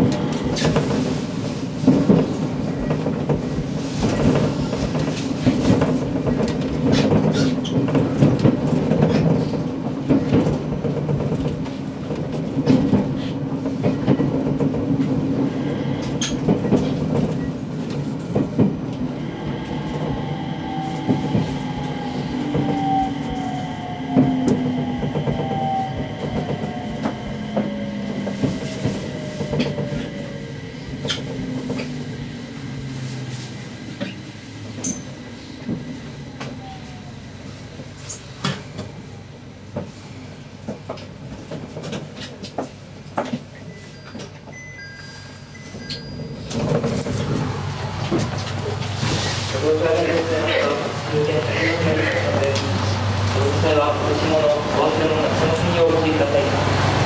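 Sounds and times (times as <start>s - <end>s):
train wheels clicking over rail joints: 1.8s - 15.4s.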